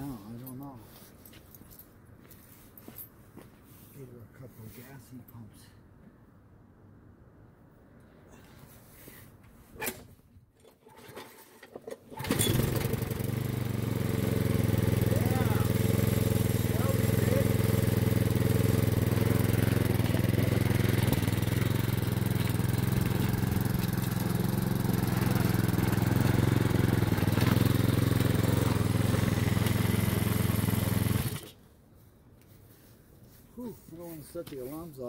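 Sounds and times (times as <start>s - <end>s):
lawn mower engine running: 10.8s - 31.6s.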